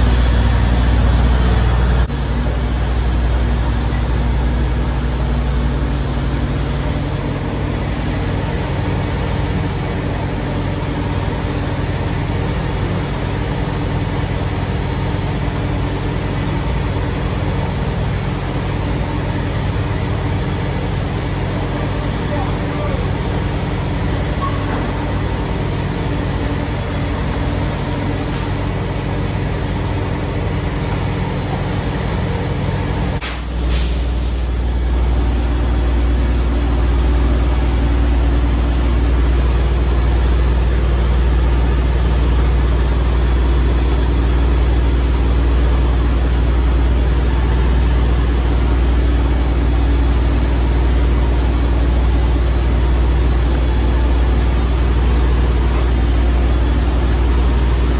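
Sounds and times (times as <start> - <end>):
diesel truck engine idling: 0.0 - 57.9
air hissing: 33.2 - 34.7.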